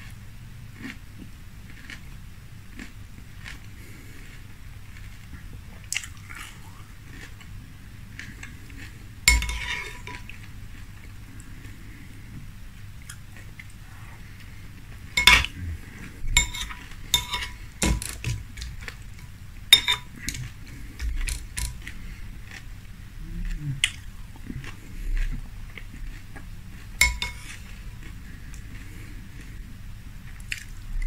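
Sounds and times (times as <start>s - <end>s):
chewing cereal: 0.0s - 12.3s, 13.0s - 31.0s
spoon clinking on glass bowl: 9.3s - 10.2s, 15.2s - 15.5s, 16.4s - 18.0s, 19.8s - 20.4s, 27.0s - 27.5s.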